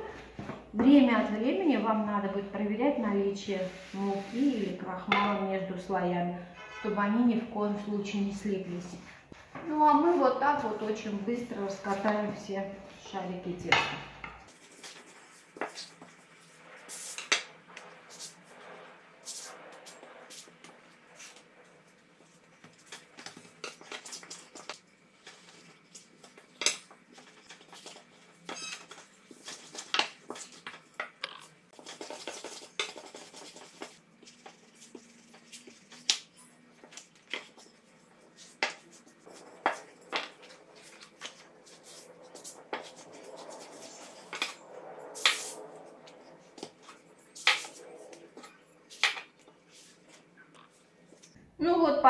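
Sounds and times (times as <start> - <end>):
rolling pin rolling dough: 13.6 - 51.3.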